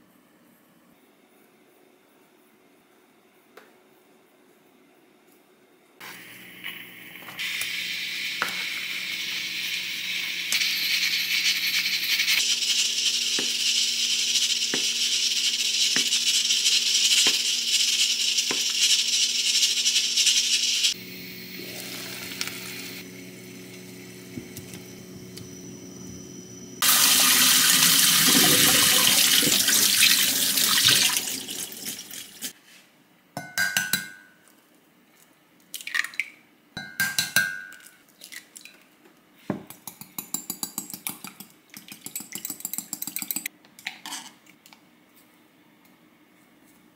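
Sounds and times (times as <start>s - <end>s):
water running: 26.8s - 32.6s.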